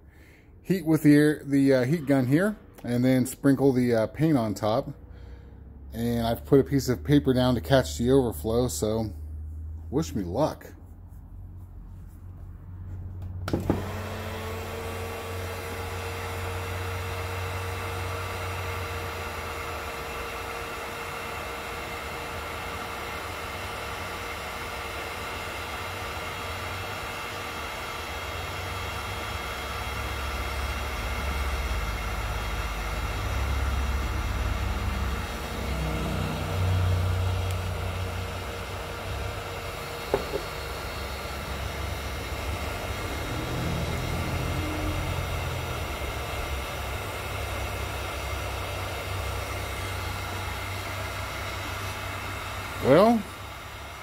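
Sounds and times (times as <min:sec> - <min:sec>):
fan motor whine: 0:04.2 - 0:54.0
heat gun blowing air: 0:13.4 - 0:54.0.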